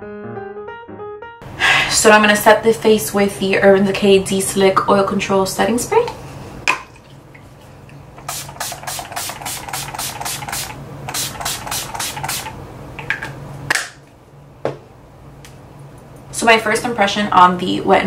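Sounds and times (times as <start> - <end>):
spray bottle hissing: 8.2 - 12.5.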